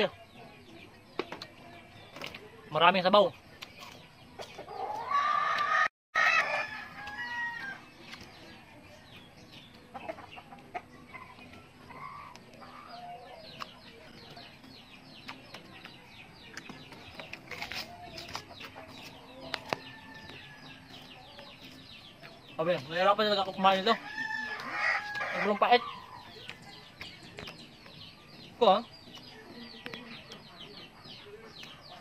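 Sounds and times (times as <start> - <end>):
chickens clucking: 0.0 - 32.0
rooster crowing: 4.8 - 7.8, 24.0 - 25.6.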